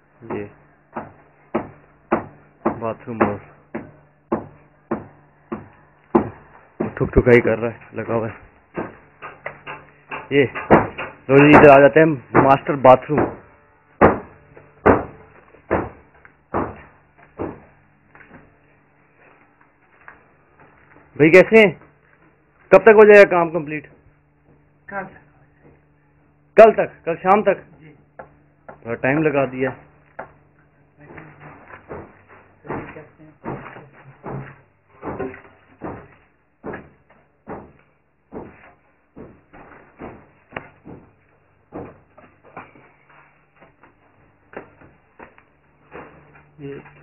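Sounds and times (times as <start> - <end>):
hammer blows: 0.2 - 17.8
dull knocks: 8.7 - 17.7, 31.4 - 42.8.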